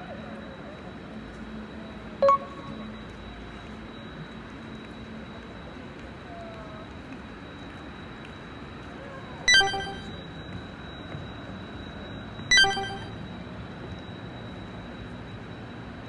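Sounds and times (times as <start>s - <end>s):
outdoor background noise: 0.0s - 16.0s
bell-like chime: 9.5s - 10.1s, 12.5s - 13.1s
thin high tone: 9.5s - 10.2s, 12.5s - 13.2s.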